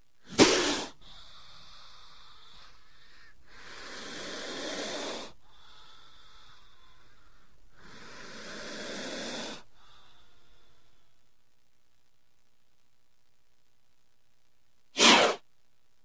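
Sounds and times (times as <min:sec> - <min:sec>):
snake hissing: 0:00.2 - 0:10.3, 0:15.0 - 0:15.4.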